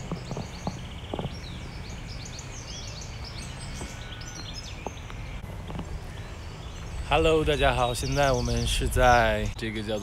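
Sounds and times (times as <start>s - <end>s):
bird trill: 0.0s - 10.0s
songbirds chirping and singing: 0.0s - 10.0s.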